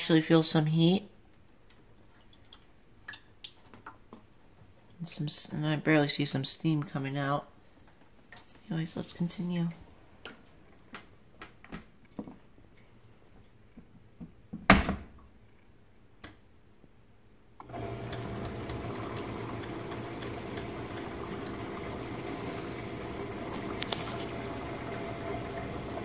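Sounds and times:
dishwasher pump hum: 17.6s - 26.0s
water spraying inside dishwasher: 17.7s - 26.0s.

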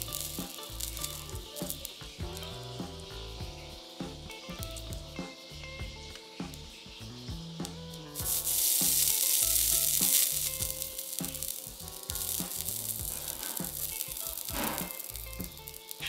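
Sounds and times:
flux sizzling under soldering iron: 0.0s - 2.3s, 8.2s - 16.0s.

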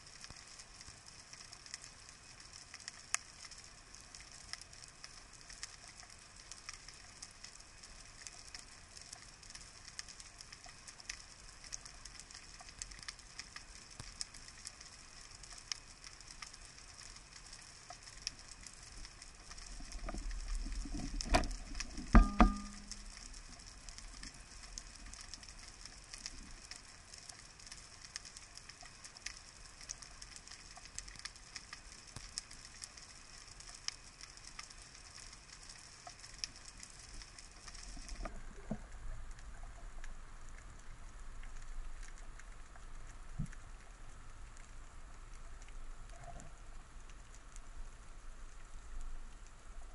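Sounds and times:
crackle of faint underwater clicks: 0.0s - 49.9s
loud underwater knocks: 22.1s - 23.0s.

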